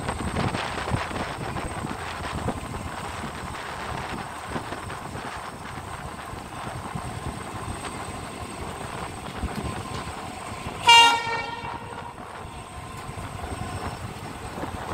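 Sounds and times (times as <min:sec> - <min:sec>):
train rumbling: 0:00.0 - 0:14.9
wind on microphone: 0:00.0 - 0:14.9
train horn blast: 0:10.6 - 0:12.5.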